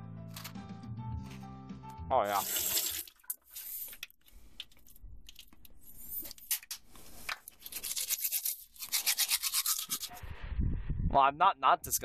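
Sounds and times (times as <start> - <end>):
toothbrush scrapes and clicks: 7.4 - 10.2
teeth brushing strokes: 7.5 - 10.2.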